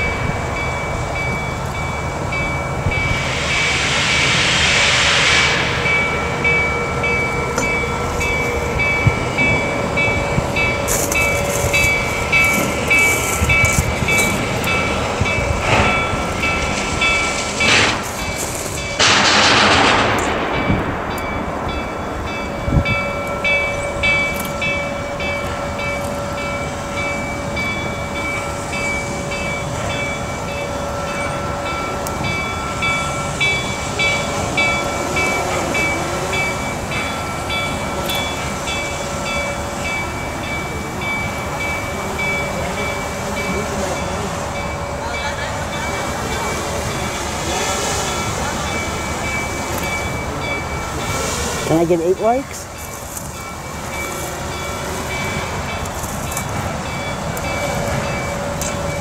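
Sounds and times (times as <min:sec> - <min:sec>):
distant steam locomotive: 0:00.0 - 0:59.0
locomotive bell ringing: 0:00.0 - 0:59.0
loud hiss of released steam: 0:02.0 - 0:24.4.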